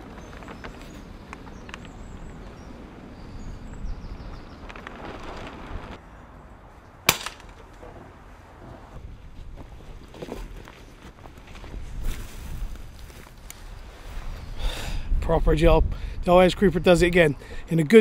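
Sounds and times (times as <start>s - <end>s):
wind rumble on microphone: 0.0s - 6.0s, 11.4s - 17.7s
air rifle shot: 7.1s - 7.6s.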